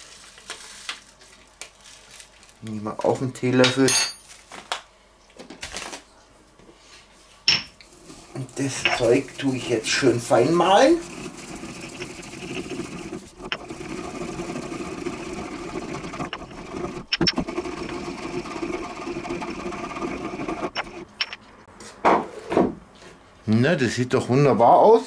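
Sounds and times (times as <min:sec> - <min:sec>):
pestle grinding in mortar: 0:08.7 - 0:21.2.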